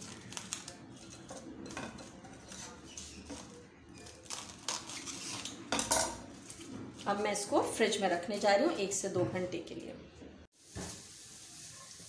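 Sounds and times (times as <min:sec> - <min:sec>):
cling film crinkling: 0:00.0 - 0:01.2, 0:02.9 - 0:05.5
scissors cutting film: 0:00.0 - 0:01.4, 0:02.4 - 0:05.6.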